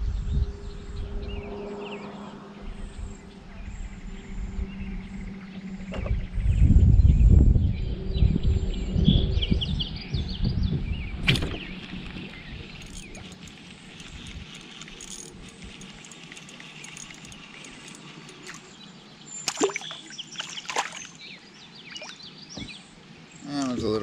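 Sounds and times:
wind buffeting microphone: 0.0 - 1.9, 2.6 - 14.6
birds chirping: 7.6 - 24.0.

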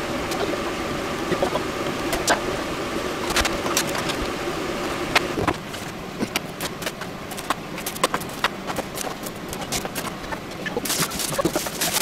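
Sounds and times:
steady kitchen whirring: 0.0 - 12.0.

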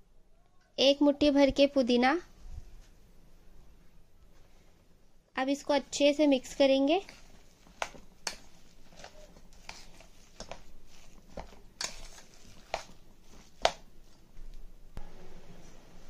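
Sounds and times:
hand mixing minced meat in bowl: 5.5 - 14.7.

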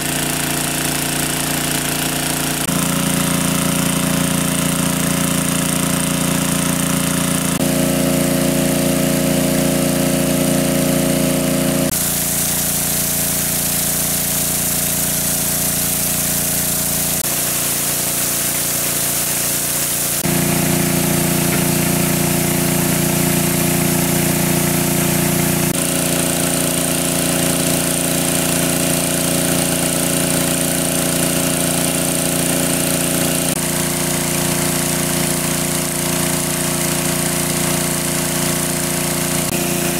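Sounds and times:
water pump engine running: 0.0 - 39.9.

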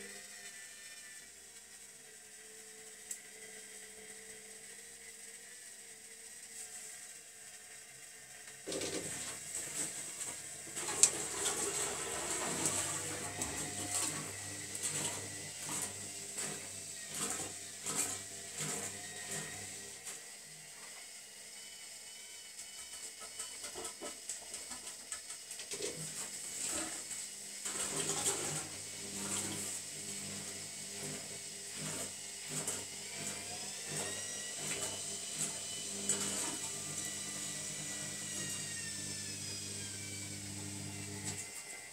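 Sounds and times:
washing machine motor hum: 8.6 - 20.5, 25.6 - 41.9.

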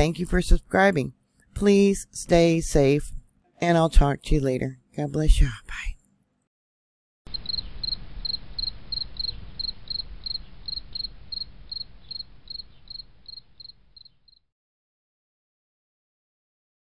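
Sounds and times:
low rumble: 7.3 - 14.0
cricket chirping: 7.3 - 14.4.

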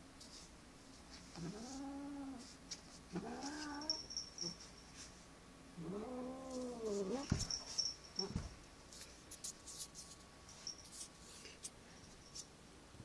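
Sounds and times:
dull thumps: 7.2 - 8.6.

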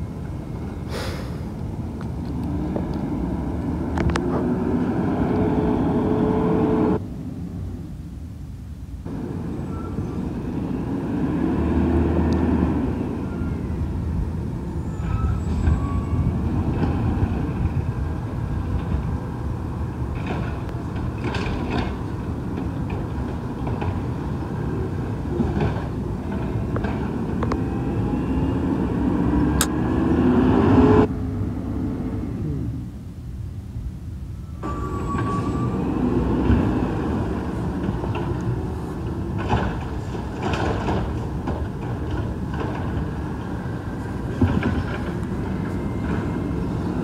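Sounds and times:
diesel engine revving: 0.9 - 7.0, 9.1 - 13.3, 21.1 - 33.0
carts knocking and banging: 39.0 - 46.7.

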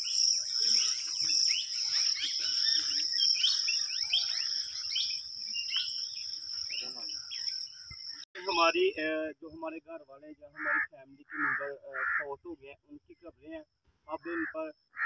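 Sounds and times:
footsteps rustling through weeds: 0.9 - 4.9.

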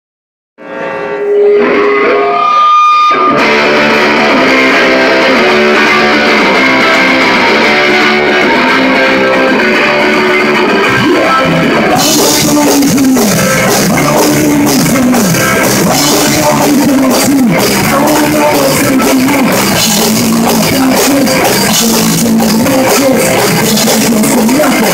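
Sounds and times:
held guitar note: 0.6 - 8.5
rock band playing: 0.6 - 24.9
person singing: 3.2 - 24.9.

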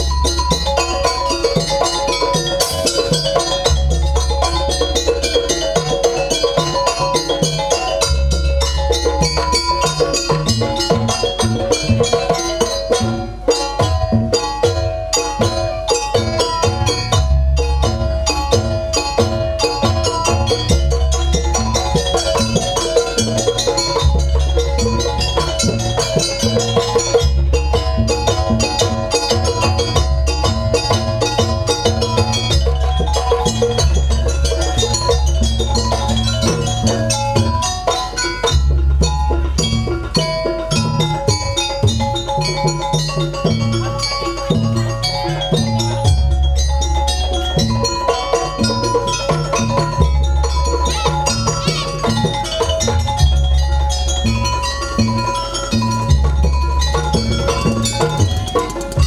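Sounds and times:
drums: 0.0 - 59.0
gamelan music: 0.0 - 59.0.

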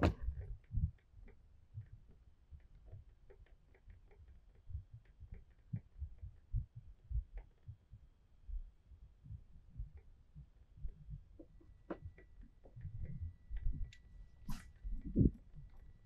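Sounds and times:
dull low thumps: 0.0 - 1.0, 5.7 - 15.8.

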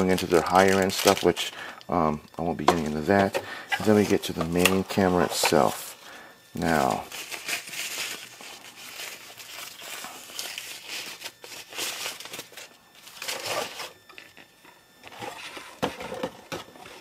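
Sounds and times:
wrapping crinkling and rustling: 0.0 - 17.0.

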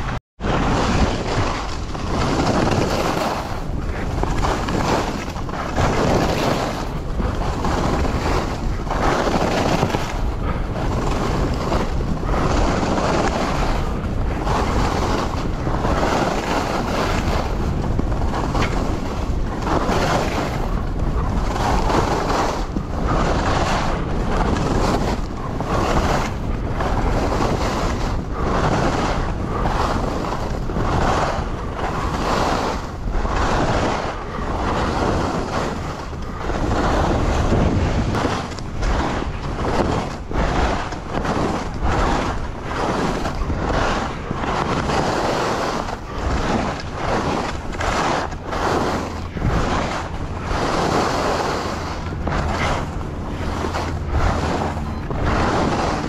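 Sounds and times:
wind on microphone: 0.0 - 56.0
skis hissing through snow: 38.9 - 52.7, 55.2 - 55.9.

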